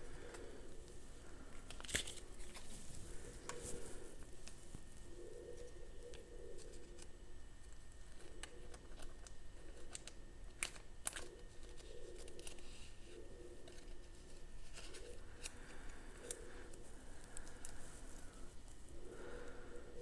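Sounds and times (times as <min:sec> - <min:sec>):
plastic card sleeve rustling: 0:01.5 - 0:04.9.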